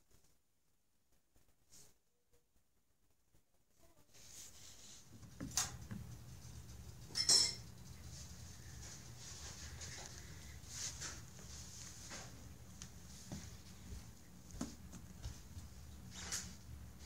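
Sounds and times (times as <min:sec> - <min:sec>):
steady low hum: 0:04.4 - 0:17.0.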